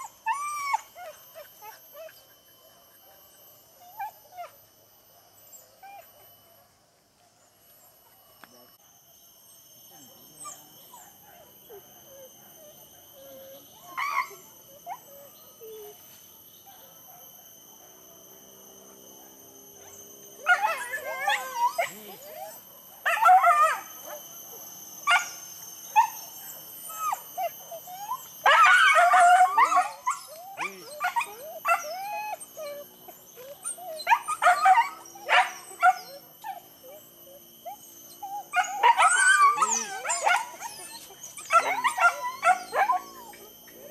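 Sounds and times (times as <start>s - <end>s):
dogs barking yelping and howling: 0.0s - 6.7s, 10.4s - 43.9s.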